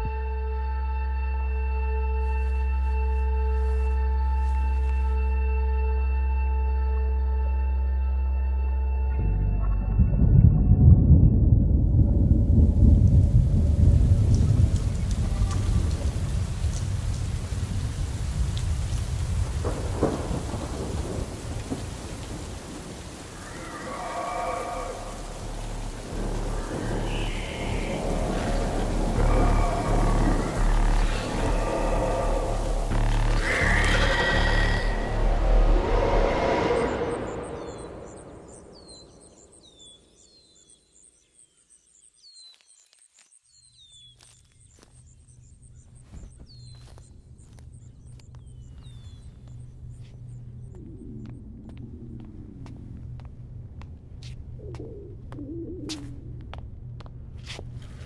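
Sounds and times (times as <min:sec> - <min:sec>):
deep low rumble: 0:09.1 - 0:23.7, 0:24.5 - 0:39.8, 0:46.5 - 0:58.0
birds chirping: 0:19.0 - 0:52.6.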